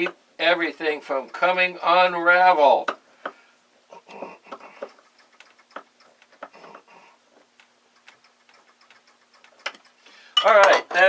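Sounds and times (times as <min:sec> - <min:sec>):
screwdriver scraping metal: 0:01.0 - 0:02.2.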